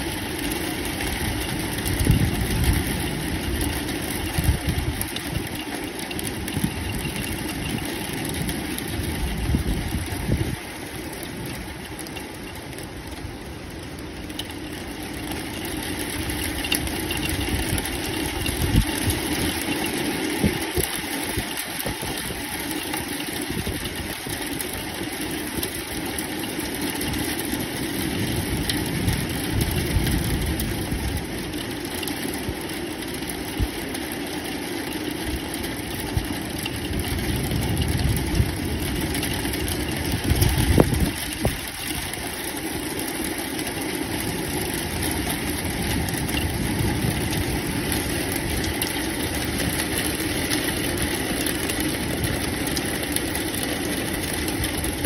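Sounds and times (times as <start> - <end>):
rain hissing: 0.0 - 55.0
thunder rumbling: 35.7 - 55.0.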